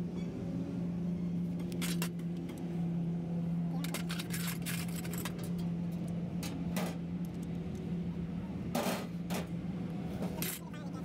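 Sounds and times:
low machine hum: 0.0s - 11.0s
metal tools clinking and knocking: 3.8s - 5.7s, 10.4s - 10.8s.

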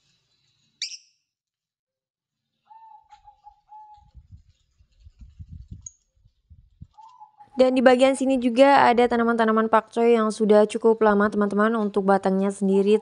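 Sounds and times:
bird chirping: 0.0s - 1.2s, 2.4s - 7.7s.

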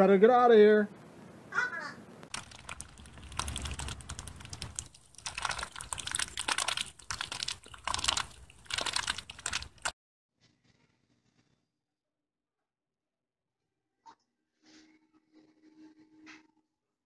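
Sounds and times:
ducks dabbling rapid clicks: 2.3s - 9.9s.

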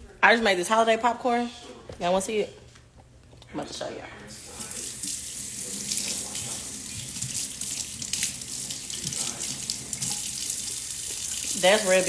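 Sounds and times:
water running from a tap: 4.4s - 12.0s.

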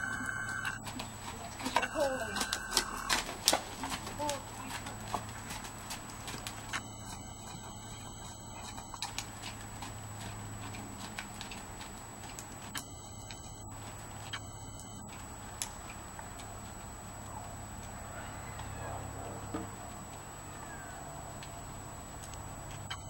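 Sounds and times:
horse hoofbeats on soft ground: 0.0s - 23.0s
low background hum: 0.0s - 23.0s.

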